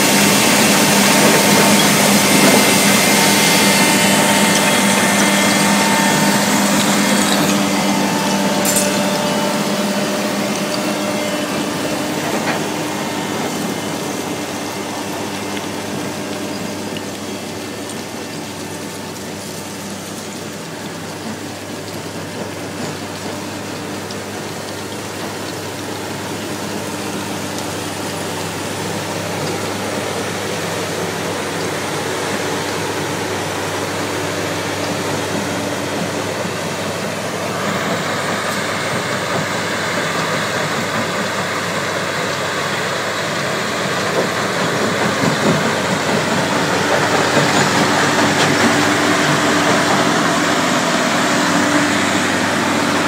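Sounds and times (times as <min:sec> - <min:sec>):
diesel engine hum: 0:00.0 - 0:53.0.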